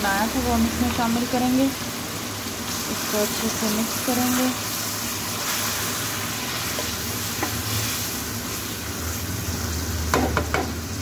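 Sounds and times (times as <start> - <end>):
meat sizzling in hot oil: 0.0 - 11.0
spatula knocking against pan: 10.1 - 10.7.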